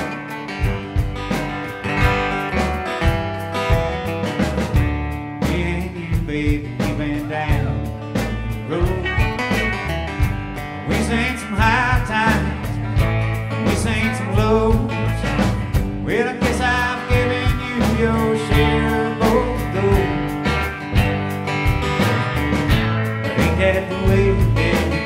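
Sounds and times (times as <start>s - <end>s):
electric guitar: 0.0s - 25.0s
steady drum beat: 0.0s - 25.0s
strummed acoustic guitar: 0.0s - 25.0s
upright double bass: 0.0s - 25.0s
man singing: 5.4s - 9.7s, 10.8s - 20.6s, 23.2s - 25.0s.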